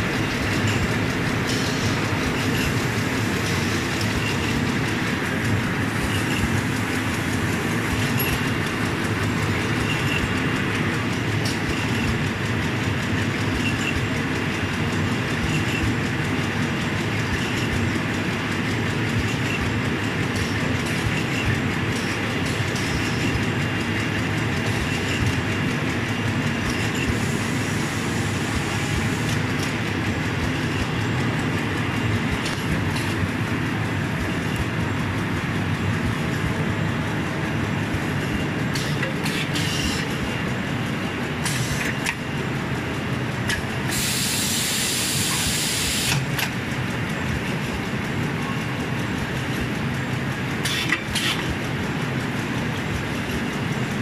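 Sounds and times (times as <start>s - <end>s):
machinery clatter: 0.0s - 54.0s
air hisses: 43.9s - 46.2s.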